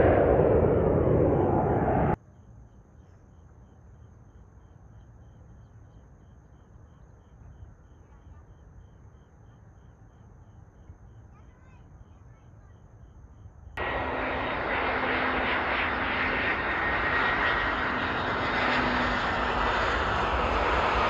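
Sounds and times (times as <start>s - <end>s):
airplane engine rushing: 0.0s - 2.2s, 13.8s - 21.0s
low distant hum: 0.0s - 2.2s, 13.8s - 21.0s.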